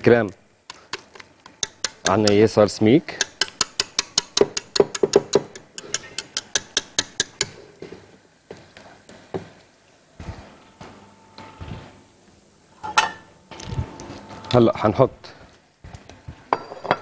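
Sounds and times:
whisk clicking against metal bowl: 0.7s - 7.5s.

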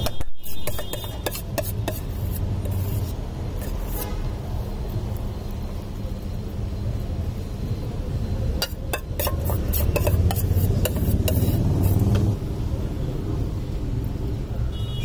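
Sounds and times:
metal spoon clinking and scraping: 0.0s - 4.1s, 8.6s - 12.4s.

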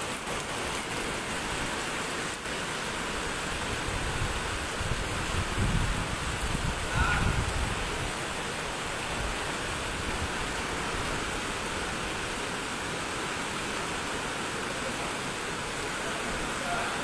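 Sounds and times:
heavy rain hiss: 0.0s - 17.0s
wind gusts buffeting microphone: 3.3s - 12.4s.

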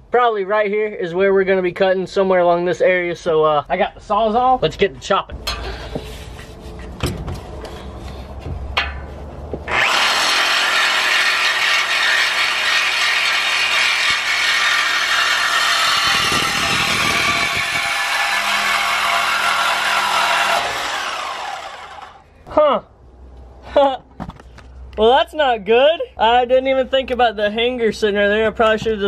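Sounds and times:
reciprocating saw cutting metal pipe: 9.7s - 22.2s.

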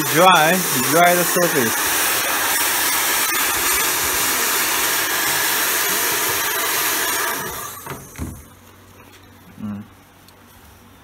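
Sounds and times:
hair dryer blowing: 0.0s - 8.4s.

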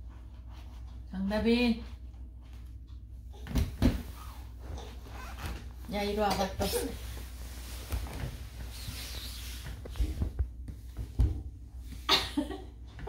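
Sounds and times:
low steady rumble: 0.0s - 3.4s, 4.0s - 13.0s
rubbing noises: 4.0s - 12.1s.

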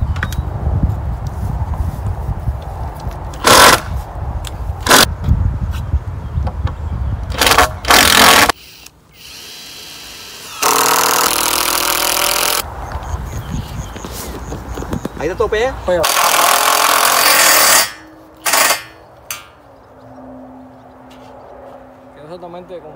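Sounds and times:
cordless drill driving screws: 7.3s - 12.6s.

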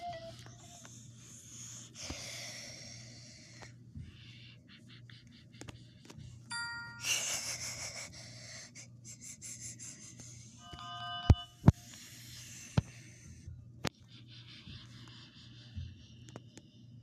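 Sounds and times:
steady low hum: 0.0s - 17.0s
bright noisy chime: 6.5s - 7.3s, 10.6s - 11.6s.

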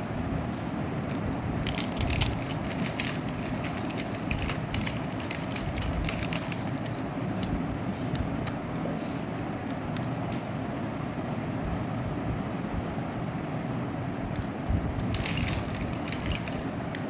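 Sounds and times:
steady low rumble: 0.0s - 17.0s
lipstick tubes clicking: 1.7s - 8.9s.

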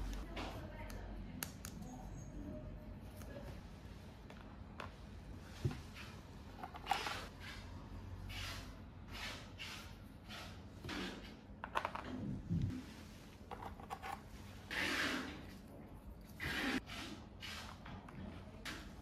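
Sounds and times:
plastic toy food rubbing and tapping: 13.5s - 15.5s.

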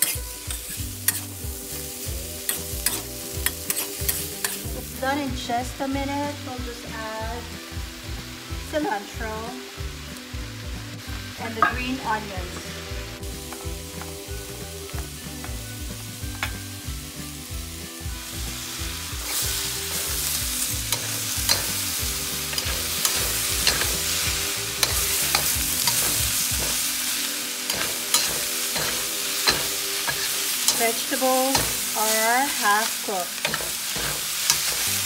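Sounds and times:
metal utensil scraping pan: 0.0s - 1.4s, 2.4s - 4.7s, 19.3s - 26.8s, 27.6s - 35.0s
food sizzling in a wok: 0.0s - 35.0s.

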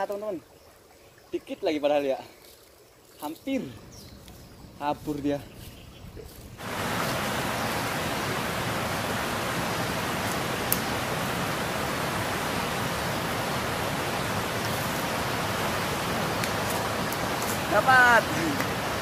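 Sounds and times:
water pouring from culvert: 6.6s - 19.0s.

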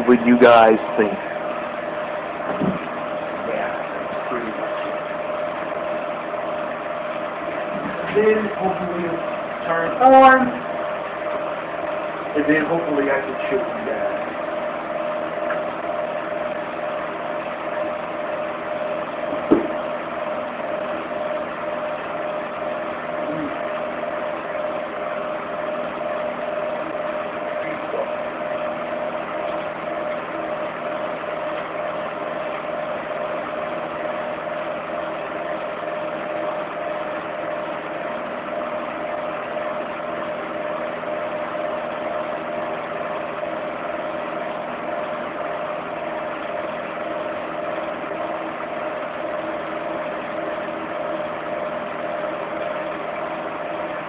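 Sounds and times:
fan heater humming: 0.0s - 54.0s
short knock: 2.5s - 2.9s, 19.4s - 19.8s.

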